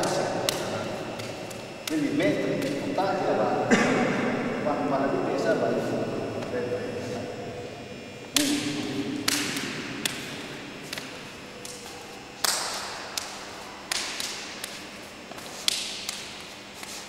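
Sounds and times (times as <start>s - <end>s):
hands and forearms slapping: 0.0s - 2.9s, 8.3s - 17.0s.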